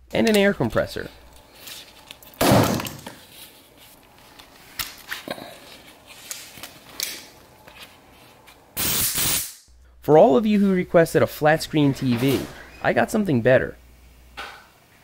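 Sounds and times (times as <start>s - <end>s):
compressed air hissing: 8.8s - 9.6s.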